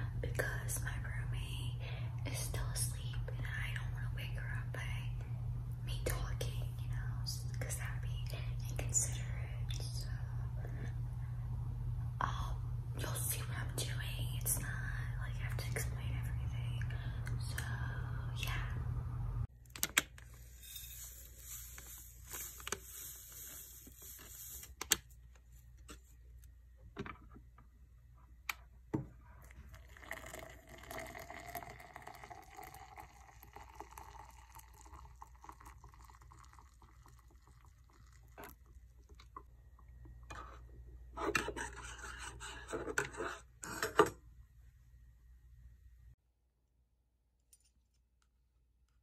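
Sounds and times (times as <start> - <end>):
water pouring into tumbler: 29.4 - 39.4.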